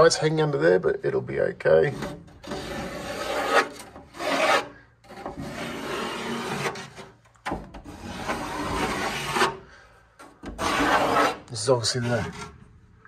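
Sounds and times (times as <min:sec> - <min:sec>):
pencil scratching on plywood: 0:01.9 - 0:07.1, 0:07.9 - 0:09.6, 0:10.4 - 0:12.6.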